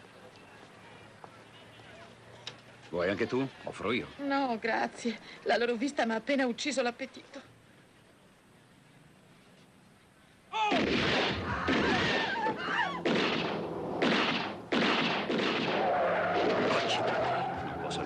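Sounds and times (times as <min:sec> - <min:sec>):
abrupt loud noise blasts: 0:10.6 - 0:17.0.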